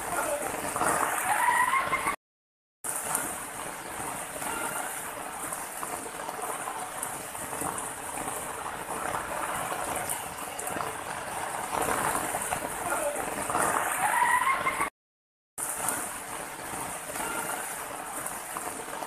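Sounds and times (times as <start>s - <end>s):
water rushing over rocks: 2.9s - 14.9s.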